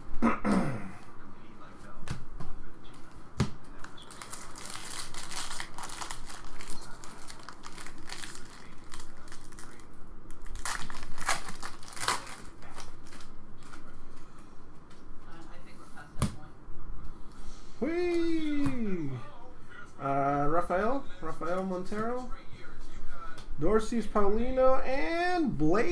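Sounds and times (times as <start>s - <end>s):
foil wrapper crinkling: 4.0s - 13.3s
foil wrapper ripping: 4.1s - 13.3s.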